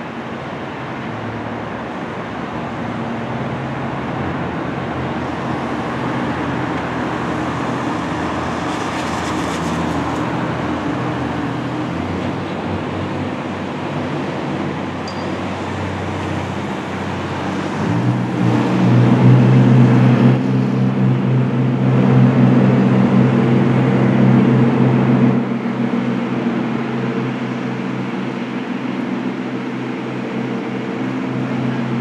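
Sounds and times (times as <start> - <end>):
boat engine droning: 0.0 - 32.0.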